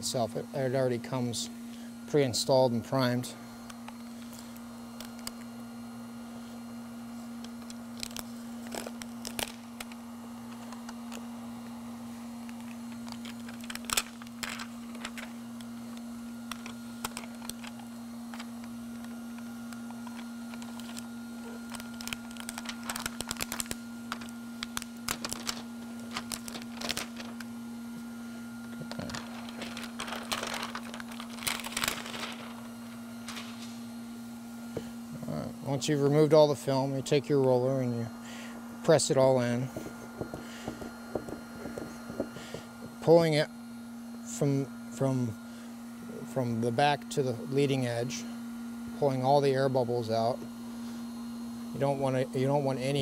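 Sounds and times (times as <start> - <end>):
steady low hum: 0.0 - 53.0
plastic film crinkling: 7.5 - 10.0, 12.4 - 15.7, 19.8 - 27.6, 28.6 - 33.9, 39.7 - 43.0.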